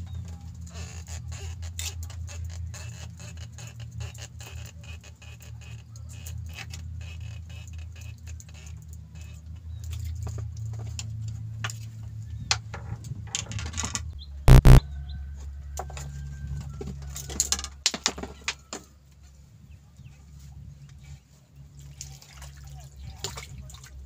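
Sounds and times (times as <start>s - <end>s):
steady low hum: 14.5s - 14.8s.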